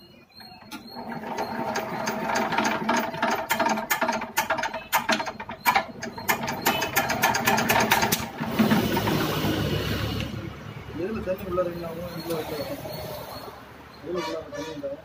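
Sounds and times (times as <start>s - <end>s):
mechanical chatter: 0.0s - 10.4s
diesel engine clattering: 0.1s - 15.0s.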